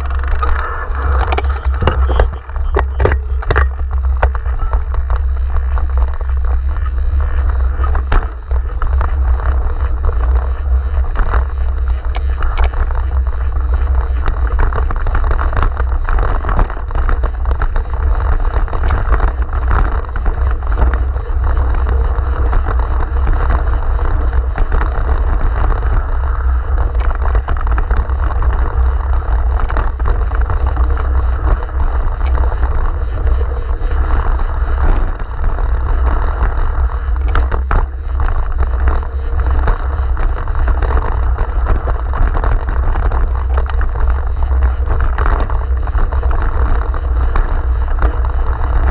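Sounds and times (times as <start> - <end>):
tyres rolling on dirt trail: 0.0 - 48.9
wind buffeting microphone: 0.0 - 48.9
bike knocks and rattles: 1.2 - 7.1.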